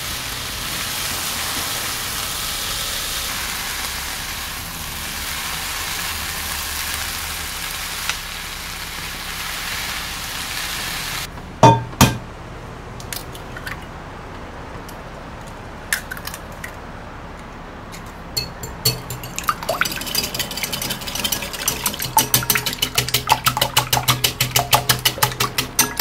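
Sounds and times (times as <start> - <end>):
vegetables sizzling in frying pan: 0.0 - 11.3
eggs cracking on glass bowl: 18.4 - 26.0.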